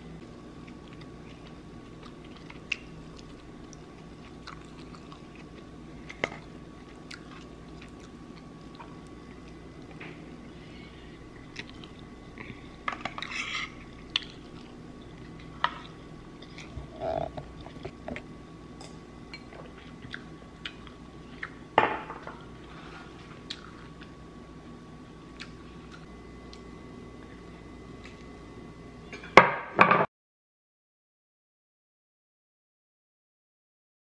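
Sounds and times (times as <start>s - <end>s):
chewing fried rice: 0.2s - 9.7s, 11.4s - 12.6s.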